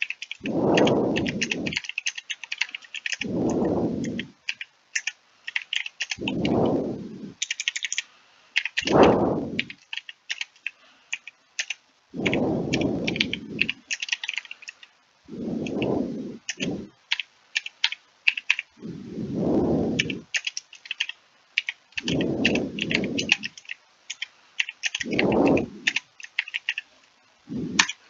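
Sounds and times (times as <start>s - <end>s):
typing on computer keyboard: 0.0s - 3.3s, 4.0s - 6.6s, 7.4s - 8.0s, 8.6s - 9.0s, 9.6s - 14.9s, 16.5s - 18.7s, 20.0s - 26.9s, 27.8s - 28.0s.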